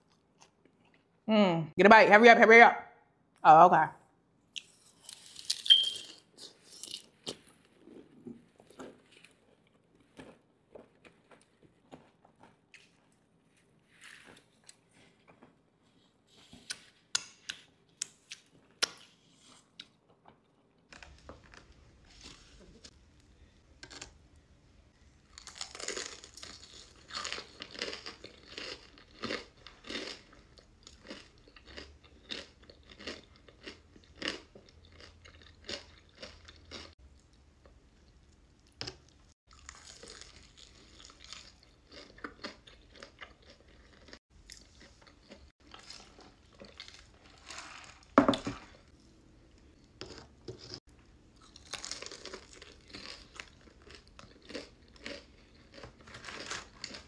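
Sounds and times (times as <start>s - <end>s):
crunching fried chicken: 25.2s - 37.0s, 39.4s - 48.9s, 51.4s - 57.0s.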